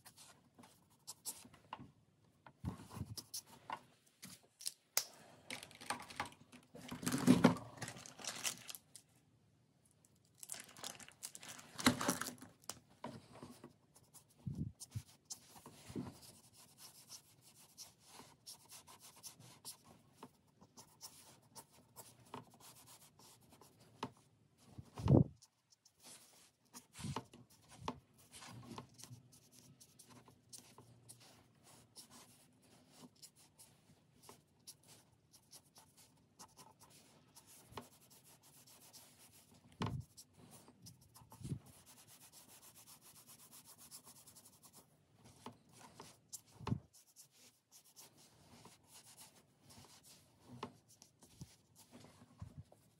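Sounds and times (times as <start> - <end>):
pen scratching on paper: 14.0 - 23.8, 25.0 - 52.0.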